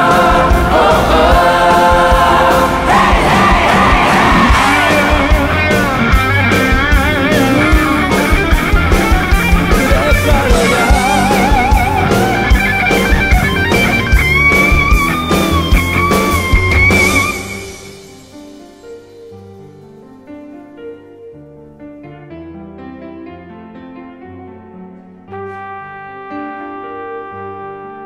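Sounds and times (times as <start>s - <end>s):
bass guitar: 0.0s - 17.9s
steady drum beat: 0.0s - 18.0s
electric guitar with vibrato: 2.6s - 18.0s.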